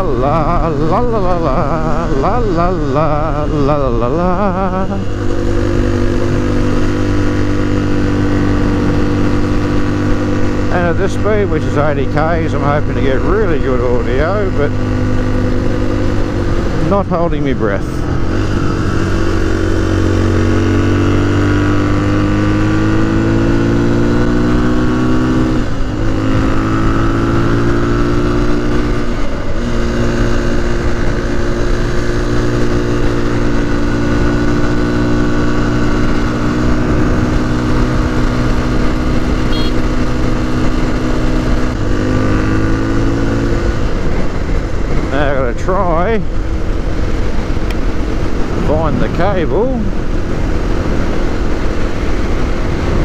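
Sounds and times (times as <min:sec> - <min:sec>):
motorcycle engine cruising: 0:00.0 - 0:53.0
wind noise on microphone: 0:34.0 - 0:42.7, 0:46.4 - 0:53.0.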